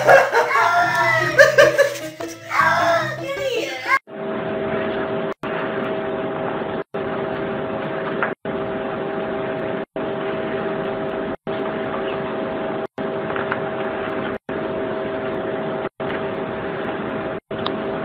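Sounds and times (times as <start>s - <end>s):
machine hum with two tones: 4.1s - 18.0s.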